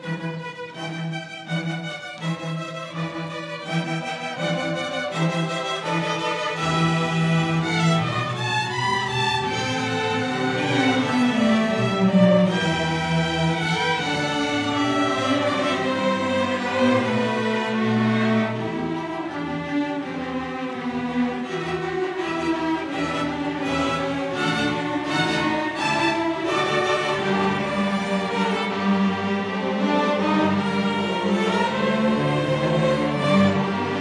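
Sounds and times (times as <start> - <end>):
string orchestra playing: 0.0 - 34.0.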